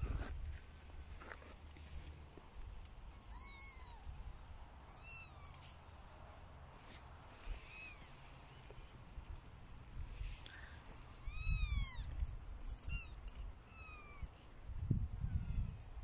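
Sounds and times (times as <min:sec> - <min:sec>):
kittens mewing: 0:03.2 - 0:04.1, 0:04.9 - 0:05.7, 0:07.5 - 0:08.2, 0:11.2 - 0:12.2.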